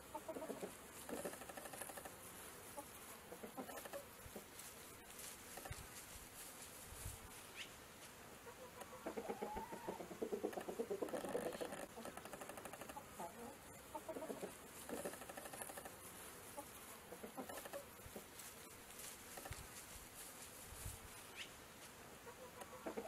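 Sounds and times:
chickens clucking: 0.0 - 4.6, 8.4 - 18.7, 22.2 - 23.0
chicken drawn-out call: 8.4 - 15.8.

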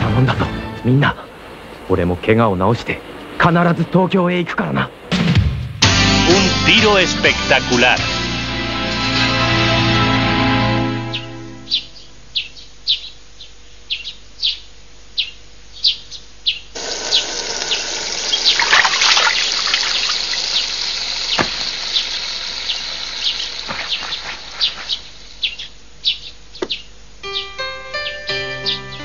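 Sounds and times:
small birds chirping: 11.1 - 29.0
water splashing on face: 18.4 - 20.5.

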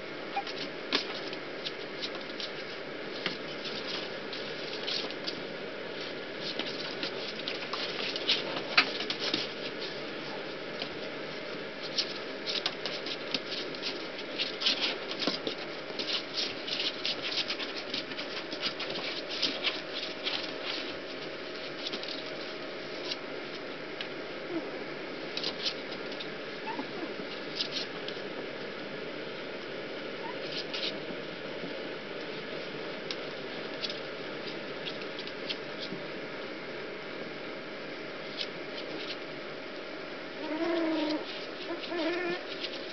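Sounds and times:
puppy claws scratching on plastic: 0.4 - 5.4, 6.0 - 11.1, 11.8 - 23.2, 25.4 - 28.2, 30.2 - 31.0, 40.4 - 42.9.

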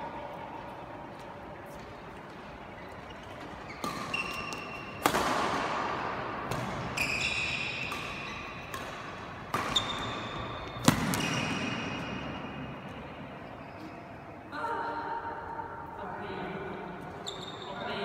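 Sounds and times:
shoes squeaking on floor: 2.6 - 5.0, 6.9 - 8.6, 9.7 - 11.8, 17.2 - 17.9
rackets hitting shuttlecock: 3.4 - 12.4.

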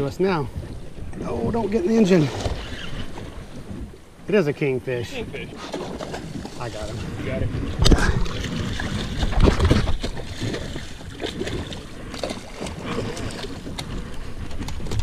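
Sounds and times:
water slapping against boat: 0.0 - 4.4, 5.1 - 15.0
wind noise: 0.0 - 15.0
fish thrashing and splashing: 5.6 - 6.9, 7.8 - 15.0.

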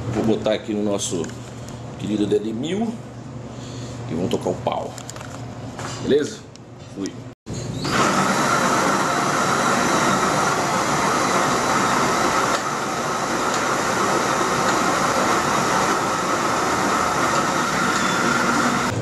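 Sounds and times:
cordless drill running: 7.8 - 18.9
grain grinding in a mill: 7.8 - 19.0.

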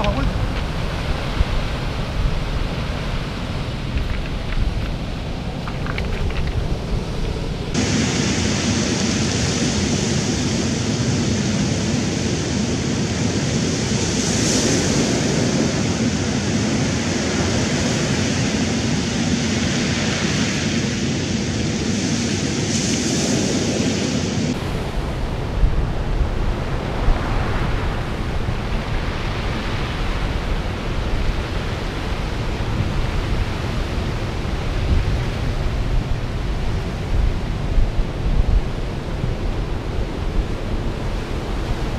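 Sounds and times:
wind buffeting microphone: 0.0 - 12.1, 23.2 - 41.9
surf washing over stones: 0.0 - 20.7.

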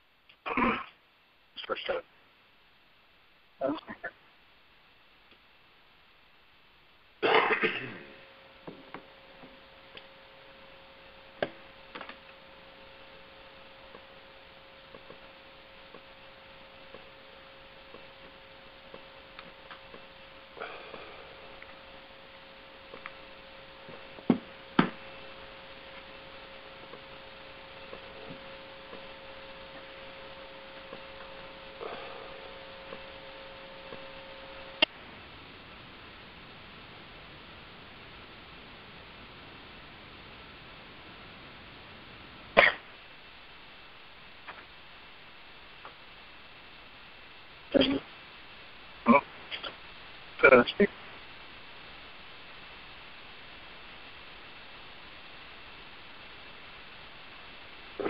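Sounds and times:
thin even hum-like tone: 0.0 - 58.0
phone line hiss: 7.9 - 36.5.

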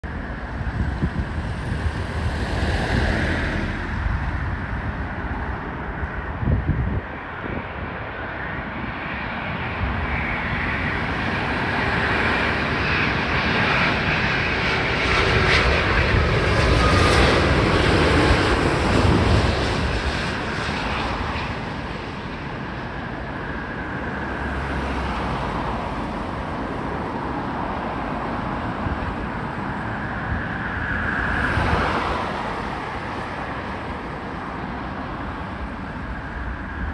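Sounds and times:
jet airliner engines roaring: 0.0 - 36.9
car passing by: 1.1 - 5.1, 24.1 - 29.0, 30.7 - 33.9.

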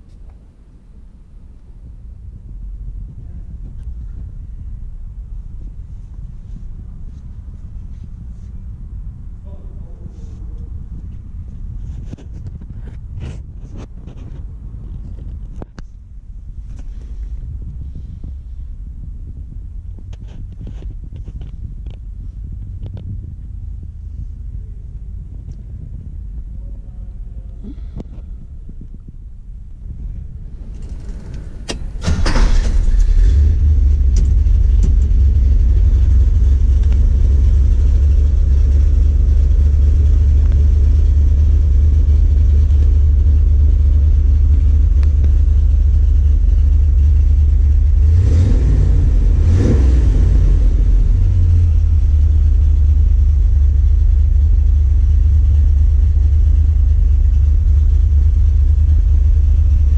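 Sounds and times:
vehicle engine idling: 0.0 - 59.9
engine revving: 30.4 - 53.5
engine starter cranking: 30.6 - 35.2.

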